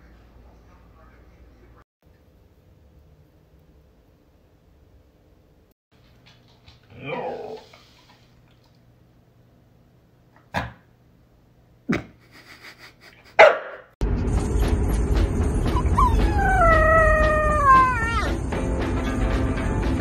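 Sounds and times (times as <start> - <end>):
dog barking: 13.4 - 13.9
puppy howling: 15.7 - 18.4.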